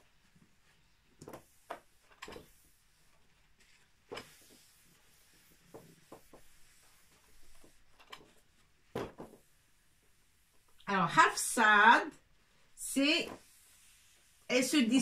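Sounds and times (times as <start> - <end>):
cloth rubbing on chalkboard: 0.5 - 7.9, 12.8 - 14.5.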